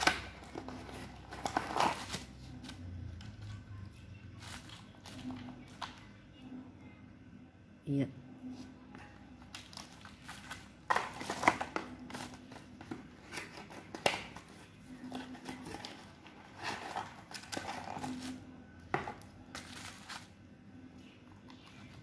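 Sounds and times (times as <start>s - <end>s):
plastic and cardboard packaging crinkling: 0.0s - 2.8s, 4.3s - 6.1s, 9.0s - 20.4s.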